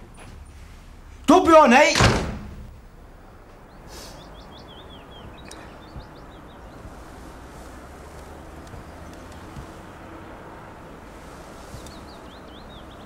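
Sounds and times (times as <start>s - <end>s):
outdoor background hiss: 0.0s - 13.0s
high bird chirps: 3.6s - 7.2s, 11.5s - 13.0s.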